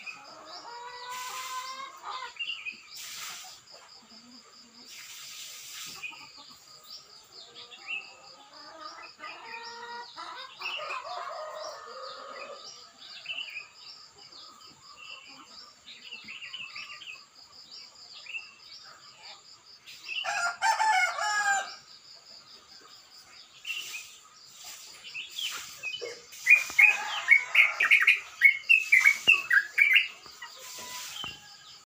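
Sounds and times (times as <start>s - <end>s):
rooster crowing: 20.2s - 21.8s, 26.6s - 28.5s
bulbul singing: 25.0s - 31.4s.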